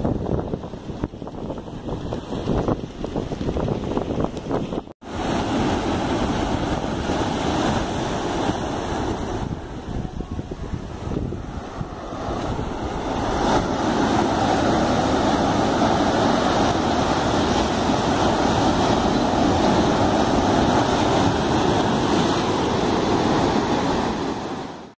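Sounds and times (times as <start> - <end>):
waves breaking on rocks: 0.0 - 24.9.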